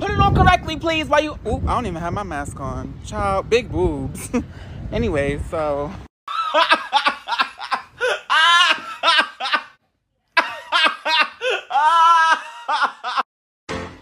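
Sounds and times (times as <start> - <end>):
woman laughing hysterically: 6.3 - 9.8, 10.4 - 13.2.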